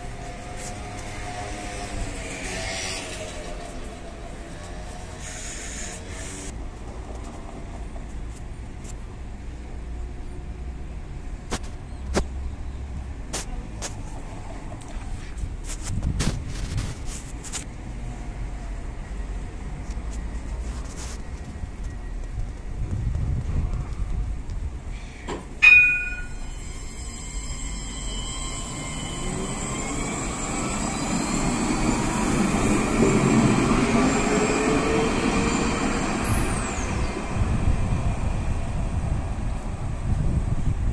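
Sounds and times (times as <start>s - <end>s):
road traffic: 0.0s - 40.9s
tram rumbling: 0.0s - 40.9s
ringing chime: 25.6s - 28.1s
tram motors whining: 25.6s - 40.7s.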